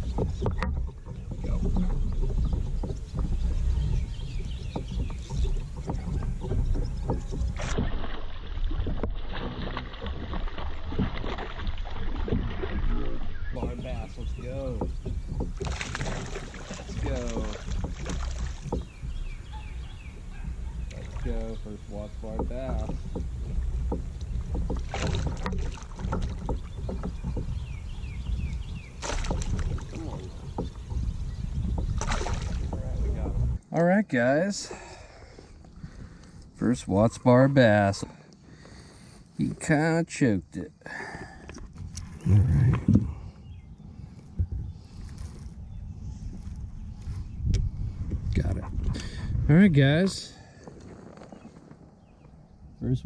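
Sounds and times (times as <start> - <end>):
wind rumbling on microphone: 0.0 - 33.7, 34.8 - 37.3, 41.3 - 53.0
knocks and clicks from boat: 0.0 - 52.7
fish splashing at surface: 15.6 - 18.7, 32.0 - 32.7.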